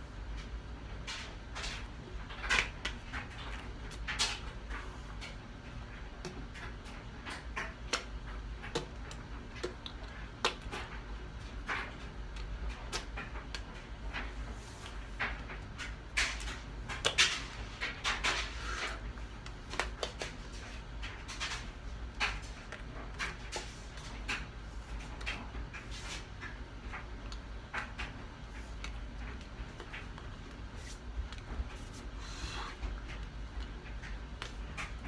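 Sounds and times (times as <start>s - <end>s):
low steady hum: 0.0s - 35.0s
hands tapping and slapping: 7.3s - 11.0s, 11.7s - 18.4s, 19.4s - 20.6s.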